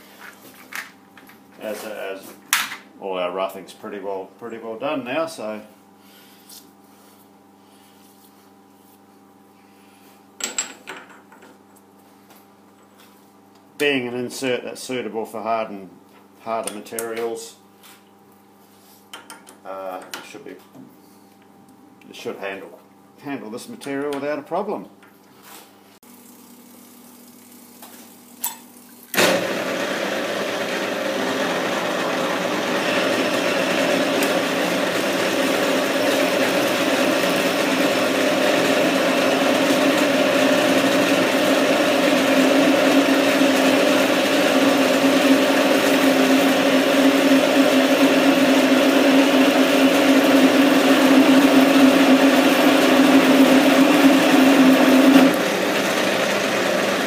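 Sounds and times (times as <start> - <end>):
flowing coolant: 26.0 - 29.2
metal lathe running: 29.2 - 57.0.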